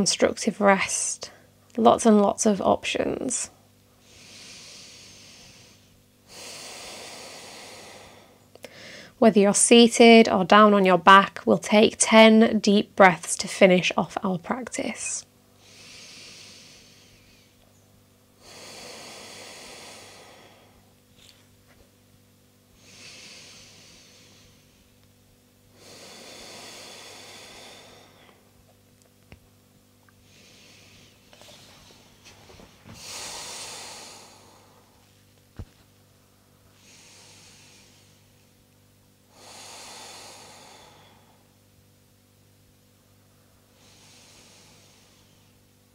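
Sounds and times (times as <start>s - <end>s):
woman breathing deeply: 3.5s - 9.2s, 15.5s - 21.1s, 22.7s - 28.6s, 30.1s - 35.2s, 36.1s - 41.7s, 43.1s - 45.8s.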